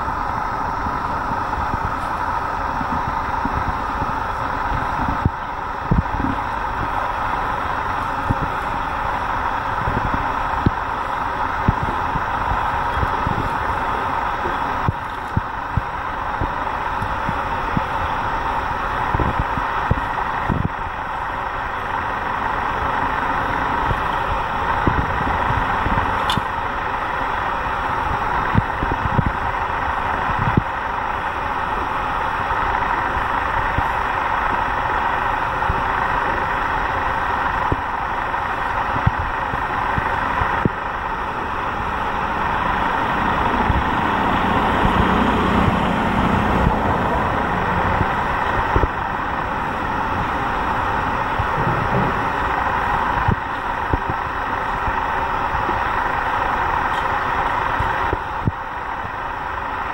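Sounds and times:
road traffic noise: 0.0s - 59.9s
low thumps: 51.3s - 53.4s.

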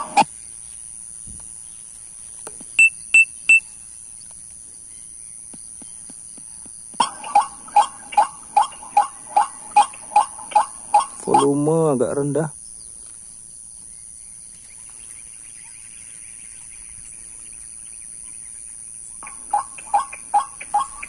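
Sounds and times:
short electronic beeps: 0.0s - 0.2s, 2.8s - 3.7s, 7.0s - 11.6s
recorded bird call repeated notes: 0.0s - 0.3s, 2.8s - 3.9s, 7.0s - 12.3s, 15.6s - 21.0s.

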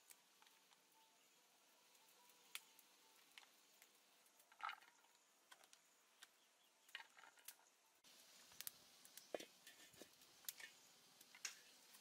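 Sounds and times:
faint clicks of chilies: 1.9s - 4.5s, 8.5s - 12.0s.

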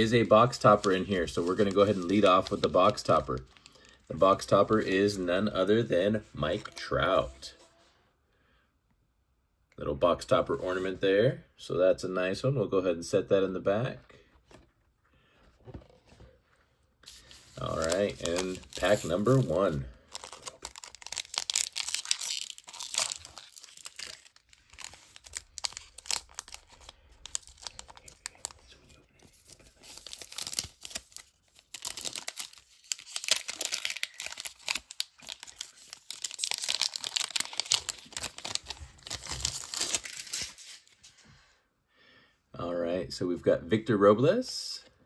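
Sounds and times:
wrapper tearing and crinkling: 0.0s - 3.9s, 17.1s - 28.6s, 29.2s - 40.9s
cards being handled: 0.0s - 5.2s, 17.0s - 41.1s.

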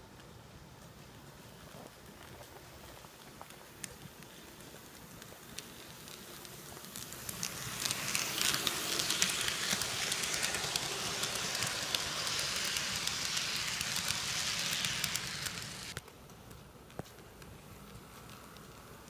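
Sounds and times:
model train rattling past: 5.5s - 16.0s.

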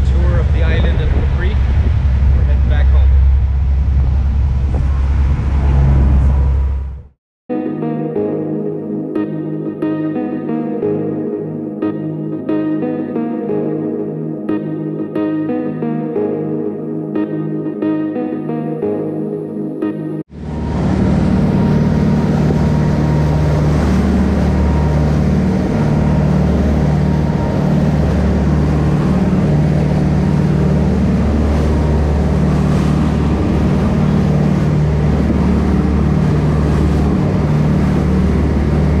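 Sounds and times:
motorboat engine drone: 0.0s - 7.2s, 19.6s - 39.0s
wake splashing along hull: 20.3s - 39.0s.

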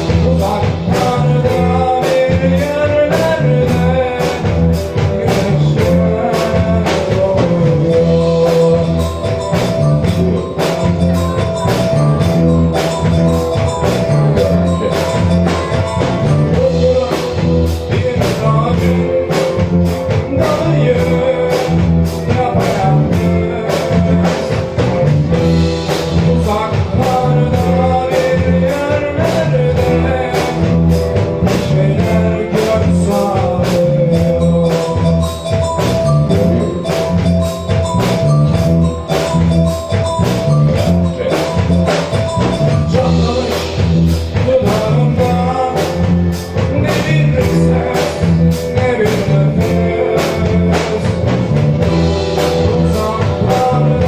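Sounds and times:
electric bass: 0.0s - 54.0s
electric guitars: 0.0s - 54.0s
steady drum kit beat: 0.0s - 54.0s.

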